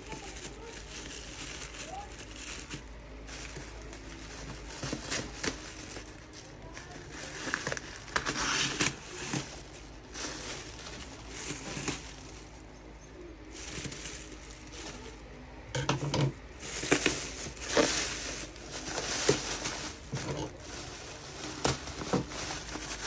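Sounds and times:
plastic crinkling and rustling: 0.0 - 23.0.

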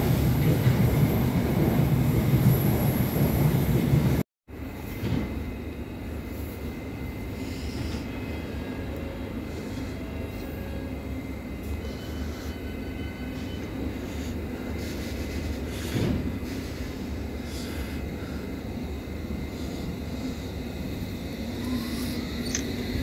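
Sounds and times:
train departing rumble: 0.0 - 23.0
faint whine: 17.4 - 23.0.

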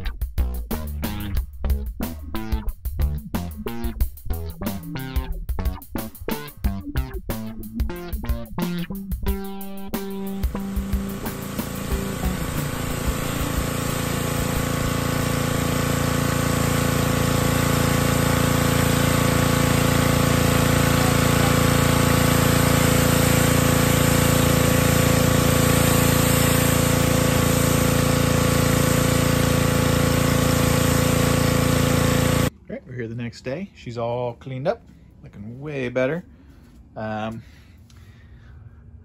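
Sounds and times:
pressure washer engine running: 3.1 - 32.5
high-pressure water spray hissing: 10.2 - 32.5.

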